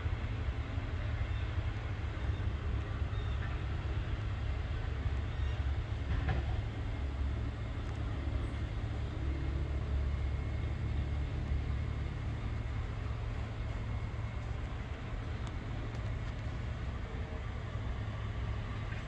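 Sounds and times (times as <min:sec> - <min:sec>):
distant freight train rumble: 0:00.0 - 0:19.0.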